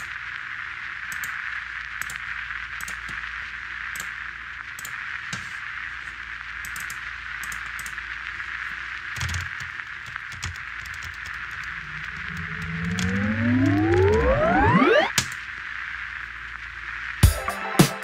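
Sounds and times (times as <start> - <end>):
static hiss: 0.0 - 17.2
crackling clicks: 1.0 - 5.5, 6.6 - 16.6
faint low hum: 7.4 - 16.9.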